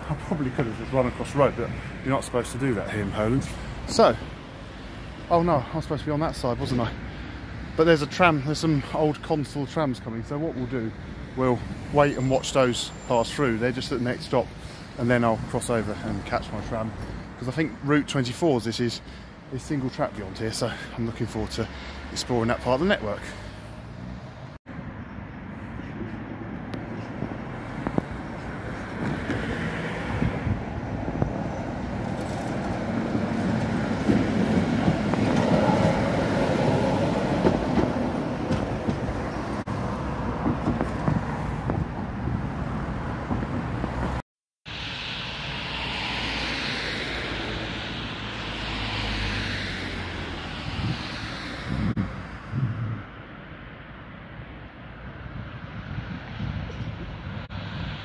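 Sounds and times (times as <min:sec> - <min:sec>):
hissy street noise: 0:00.0 - 0:58.0
tram rumbling over rails: 0:26.9 - 0:44.2.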